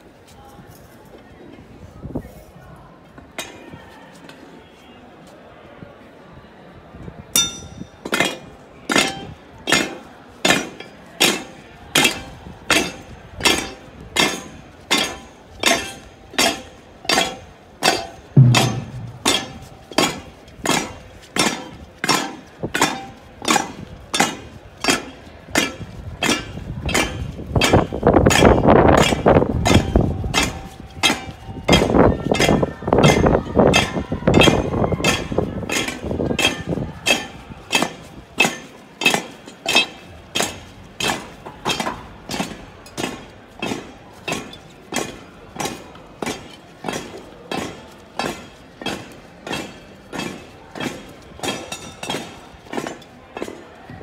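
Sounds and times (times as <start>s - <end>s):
sharp metallic knocks: 18.4s - 20.2s.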